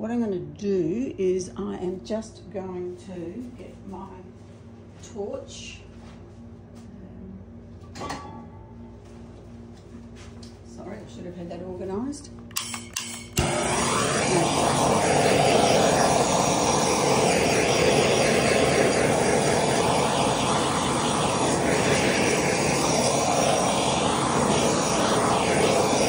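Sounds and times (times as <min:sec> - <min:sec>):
gas torch flame blowing: 0:13.1 - 0:26.0.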